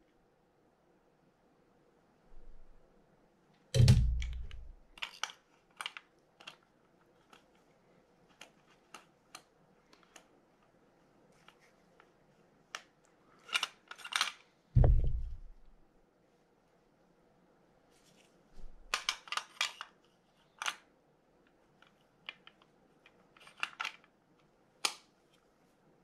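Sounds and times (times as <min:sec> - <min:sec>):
dull thump: 0:14.8 - 0:15.6.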